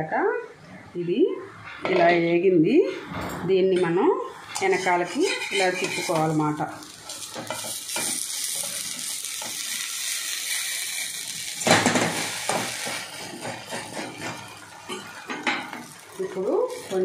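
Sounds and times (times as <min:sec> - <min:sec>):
metal spatula scraping: 0:04.4 - 0:17.0
batter sizzling in a pan: 0:04.6 - 0:17.0.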